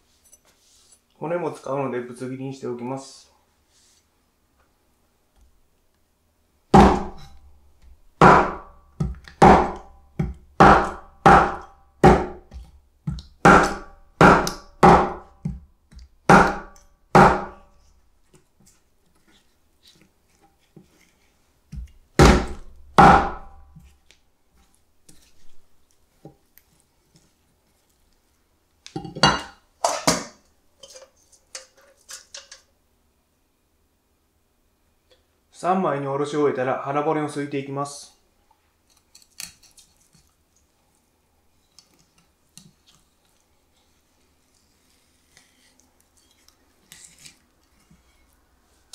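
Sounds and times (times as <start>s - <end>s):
knife chopping fish bones: 6.8s - 7.4s, 8.2s - 17.6s, 21.7s - 23.6s.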